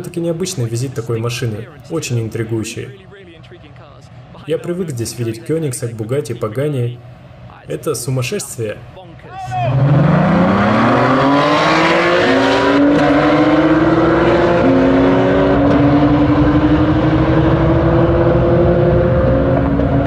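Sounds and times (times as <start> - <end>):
sports cars accelerating hard: 9.5 - 20.0.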